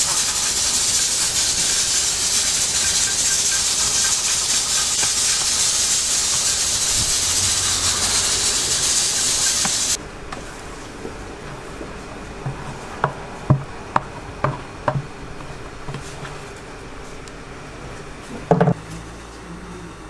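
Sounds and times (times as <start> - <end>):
loud steady hiss: 0.0 - 10.0.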